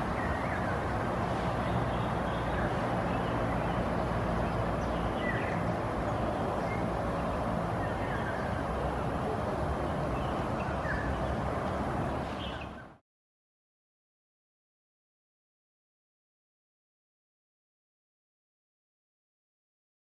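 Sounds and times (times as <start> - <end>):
distant road traffic hum: 0.0 - 13.0.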